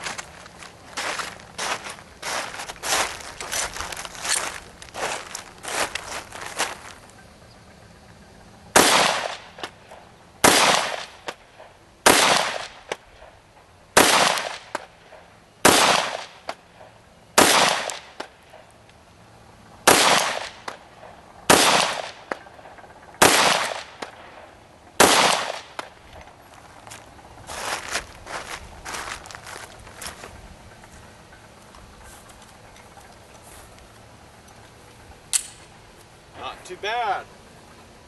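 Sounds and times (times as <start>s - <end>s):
pistol shots with echo: 8.8s - 9.8s, 10.4s - 13.4s, 14.0s - 16.5s, 17.4s - 18.6s, 19.9s - 25.9s.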